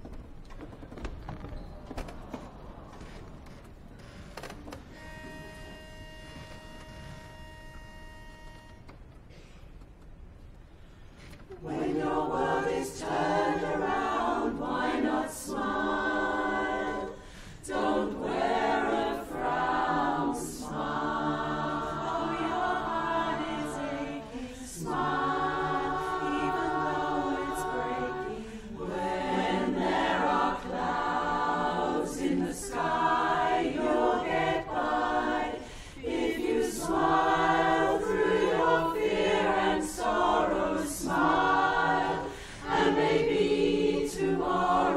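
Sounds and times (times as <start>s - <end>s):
women's chorus singing a cappella: 11.5s - 44.9s.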